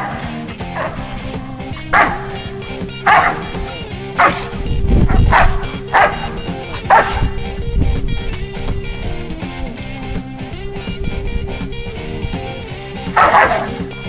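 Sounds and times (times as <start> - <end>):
dog barking: 0.0 - 1.2, 1.8 - 7.4, 13.1 - 13.9
background music: 0.0 - 14.0.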